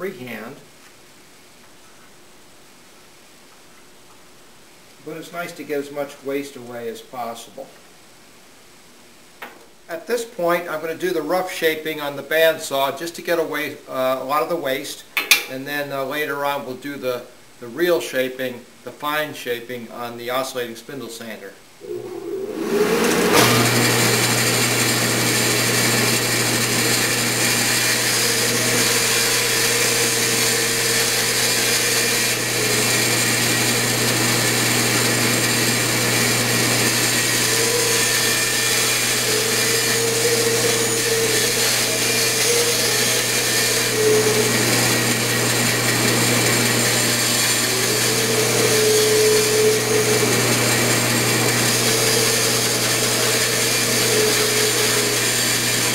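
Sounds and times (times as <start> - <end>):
bandsaw cutting wood: 21.8 - 55.9.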